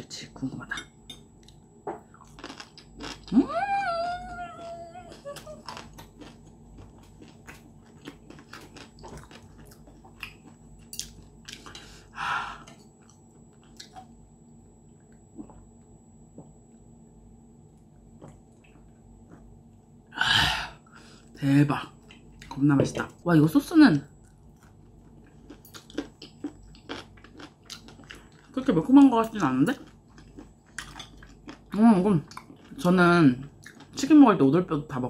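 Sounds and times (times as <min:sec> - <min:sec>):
crunchy chewing: 0:01.5 - 0:03.4, 0:04.2 - 0:11.9, 0:24.2 - 0:28.6, 0:29.3 - 0:32.9, 0:33.5 - 0:34.0.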